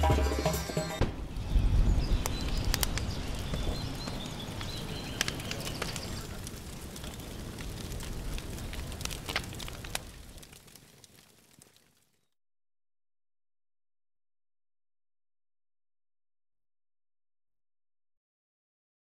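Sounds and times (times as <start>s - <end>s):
fire rumbling and crackling: 0.0s - 12.4s
birds chirping faintly: 0.1s - 9.0s.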